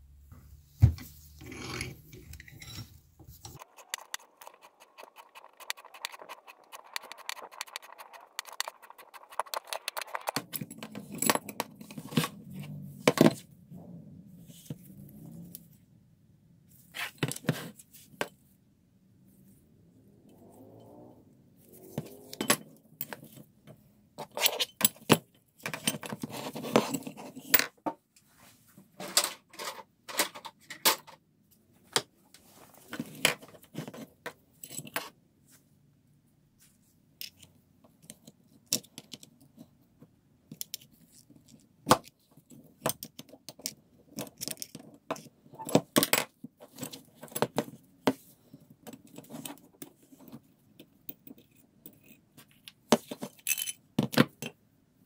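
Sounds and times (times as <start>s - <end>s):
screwdriver scraping metal screw: 3.5s - 11.3s.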